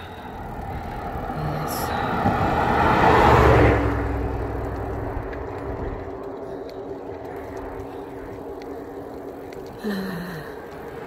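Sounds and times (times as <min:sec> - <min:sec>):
vehicle passing close by: 0:00.0 - 0:09.8
faint ticks: 0:00.0 - 0:11.0.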